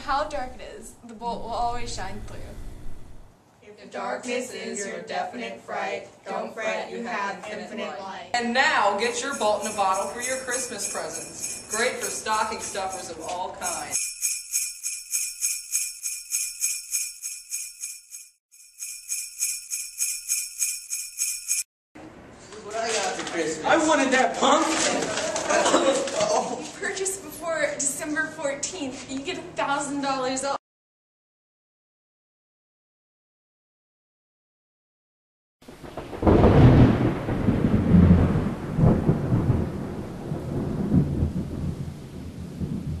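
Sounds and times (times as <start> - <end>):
thunder rumbling: 0.0 - 3.4, 35.7 - 43.0
jingle bells shaken: 9.0 - 21.7
steady rain: 35.7 - 43.0.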